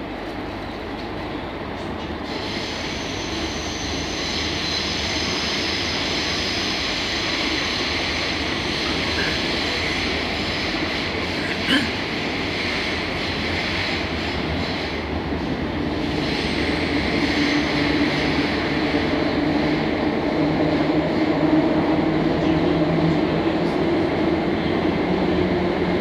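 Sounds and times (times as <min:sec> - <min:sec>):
train wheels rumbling: 0:00.0 - 0:26.0.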